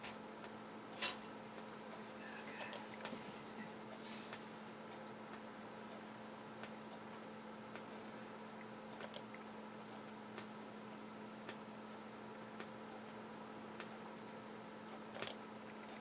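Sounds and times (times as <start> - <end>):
double clicks: 9.0 - 10.5.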